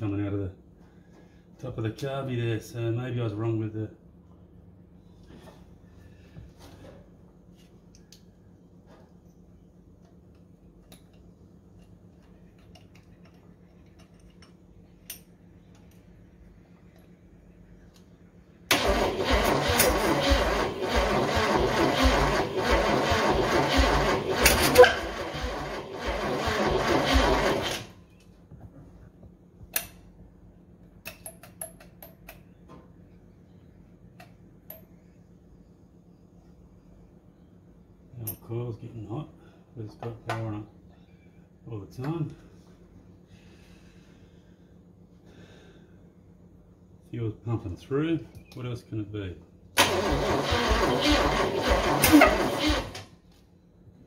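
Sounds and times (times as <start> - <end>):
low steady hum: 0.0 - 50.3
starter motor cranking: 18.7 - 28.0, 49.8 - 53.2.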